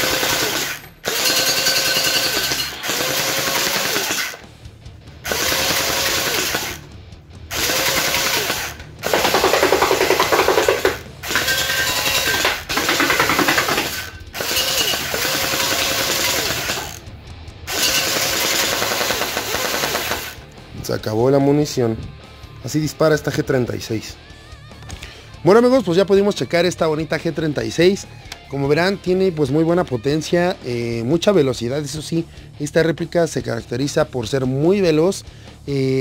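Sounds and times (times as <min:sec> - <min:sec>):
gel blaster firing full-auto: 0:00.0 - 0:04.4, 0:07.5 - 0:17.0, 0:17.7 - 0:20.4.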